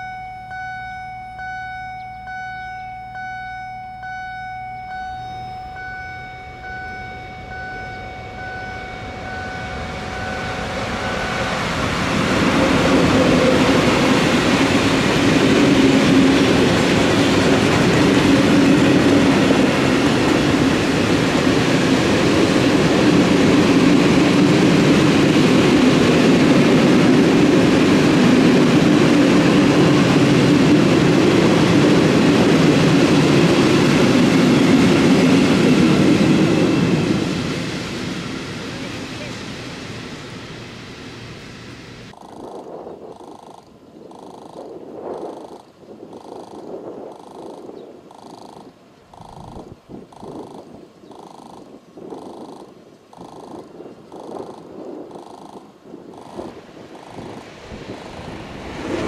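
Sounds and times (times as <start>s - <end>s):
level crossing warning bell: 0.0s - 15.0s
steady warning tone: 0.0s - 58.8s
train wheels running over rails: 6.6s - 59.0s.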